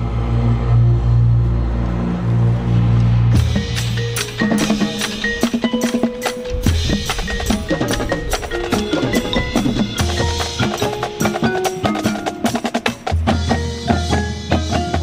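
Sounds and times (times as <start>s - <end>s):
marimba and bell notes: 3.4s - 15.0s.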